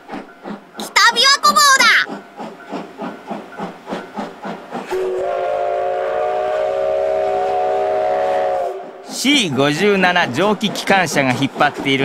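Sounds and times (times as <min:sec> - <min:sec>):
steam locomotive chuffing: 0:00.0 - 0:12.0
steam whistle blast: 0:04.9 - 0:09.1.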